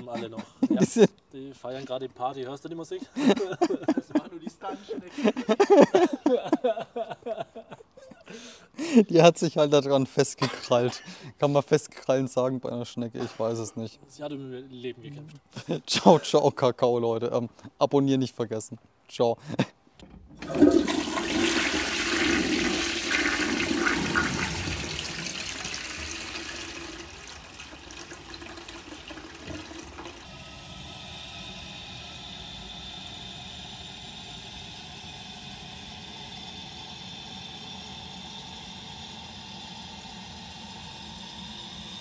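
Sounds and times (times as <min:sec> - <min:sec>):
toilet flushing: 0:20.0 - 0:42.0
cistern refilling with hiss: 0:20.4 - 0:42.0.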